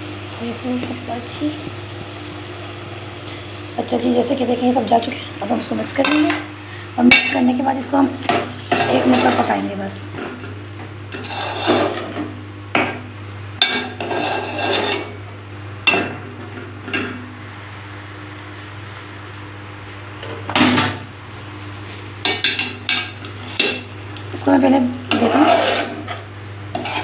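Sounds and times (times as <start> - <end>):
low steady hum: 0.0 - 27.0
metal spoon scraping pot: 11.1 - 12.0, 13.9 - 15.1, 25.1 - 27.0.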